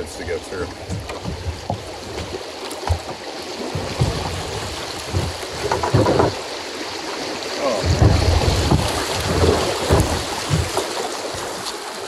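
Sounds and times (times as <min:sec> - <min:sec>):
water rushing over rapid: 0:00.0 - 0:12.0
low thumps: 0:00.6 - 0:06.4, 0:07.8 - 0:11.5.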